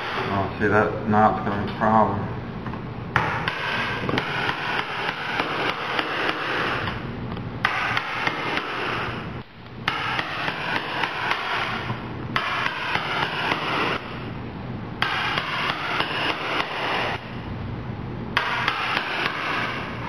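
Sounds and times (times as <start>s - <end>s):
rapid even hammering: 3.2s - 7.0s, 7.6s - 14.2s, 15.0s - 17.3s, 18.4s - 20.0s.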